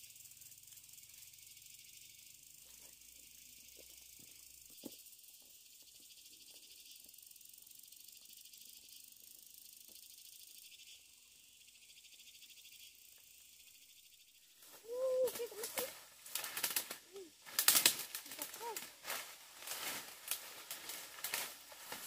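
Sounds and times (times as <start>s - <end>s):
high insect chorus: 0.0s - 22.0s
rustling through undergrowth: 14.6s - 22.0s
short pitched calls: 14.7s - 20.1s.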